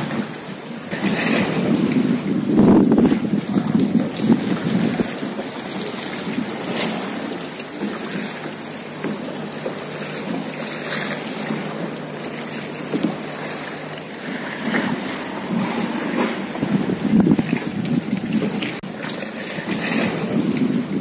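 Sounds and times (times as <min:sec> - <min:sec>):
wind noise on microphone: 0:00.0 - 0:07.3, 0:14.4 - 0:21.0
water lapping around a kayak: 0:00.0 - 0:21.0.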